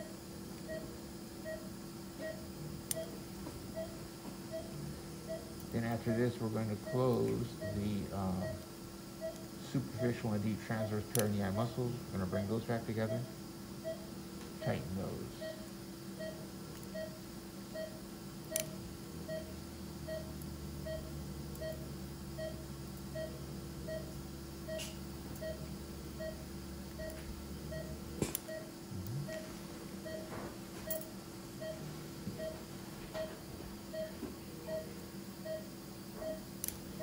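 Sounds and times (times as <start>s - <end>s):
patient monitor beeping: 0.0s - 37.0s
low hum: 28.9s - 30.2s.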